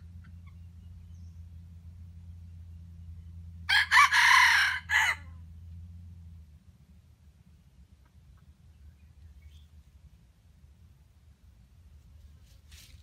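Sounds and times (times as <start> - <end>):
faint low hum: 0.0 - 13.0
rooster crowing: 3.7 - 5.4.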